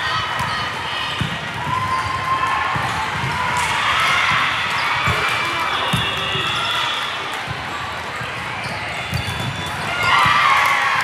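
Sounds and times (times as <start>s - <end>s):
players' voices echoing: 0.0s - 11.0s
volleyballs thudding: 8.3s - 10.8s.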